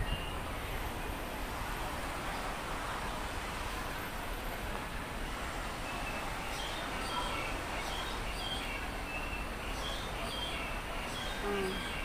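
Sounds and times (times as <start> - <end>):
small birds chirping: 5.9 - 12.0.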